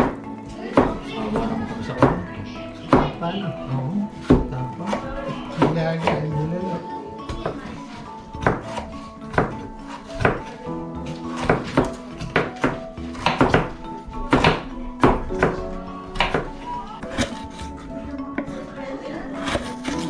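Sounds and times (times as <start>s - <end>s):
background music: 0.0s - 20.0s
knife chopping on wooden board: 4.2s - 6.3s, 8.4s - 17.8s, 19.4s - 20.0s.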